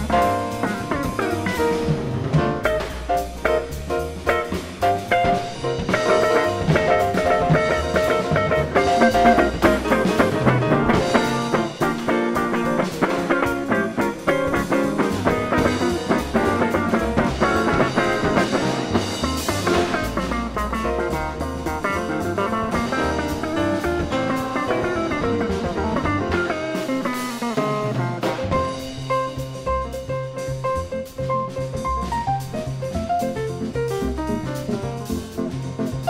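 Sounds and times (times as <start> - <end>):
double bass: 0.0 - 36.0
drum kit: 0.0 - 36.0
piano: 0.0 - 36.0
electric guitar: 4.4 - 21.1, 21.8 - 28.8.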